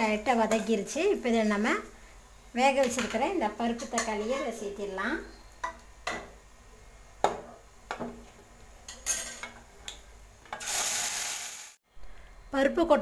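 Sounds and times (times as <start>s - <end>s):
oil sizzling: 0.0s - 11.8s
loud hiss of sizzling: 10.6s - 11.8s.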